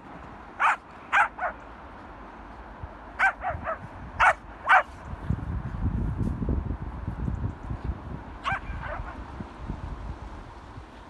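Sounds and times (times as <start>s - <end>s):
dogs barking: 0.6s - 1.6s, 3.2s - 5.0s, 8.4s - 9.2s.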